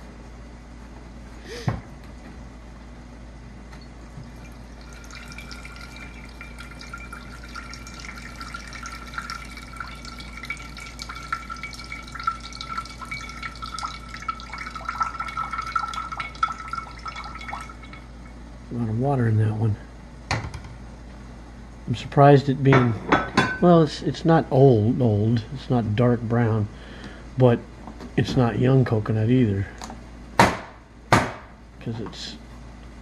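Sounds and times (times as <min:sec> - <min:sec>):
water trickling into a bowl: 0:04.1 - 0:18.4.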